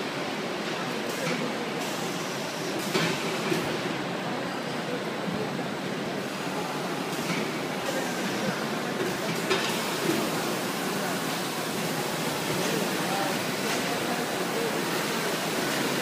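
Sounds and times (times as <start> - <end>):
hissing palletizer machine: 0.7 - 3.8, 6.1 - 16.0.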